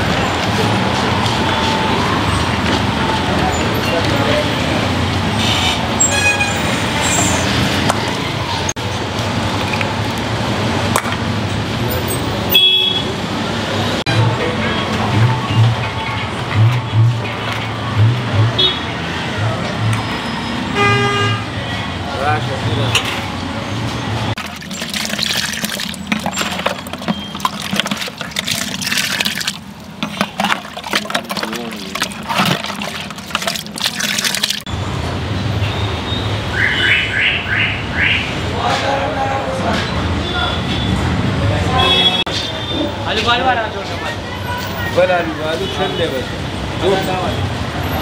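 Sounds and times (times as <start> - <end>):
traffic: 0.0 - 48.0
liquid splashing and sloshing: 24.3 - 34.7
ladle stirring liquid: 24.4 - 34.7
liquid pouring in a stream: 24.4 - 34.7.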